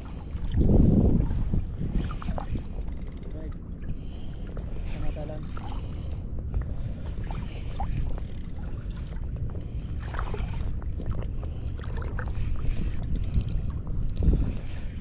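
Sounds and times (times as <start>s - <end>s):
wind buffeting microphone: 0.0s - 15.0s
spinning reel clicking: 8.1s - 8.6s.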